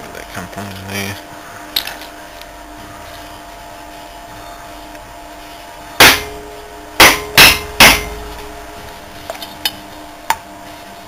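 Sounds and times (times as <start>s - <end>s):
metallic ring: 6.0s - 8.7s.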